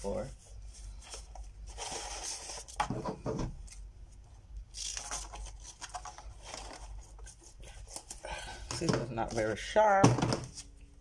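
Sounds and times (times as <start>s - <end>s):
tape rustling: 3.6s - 8.2s.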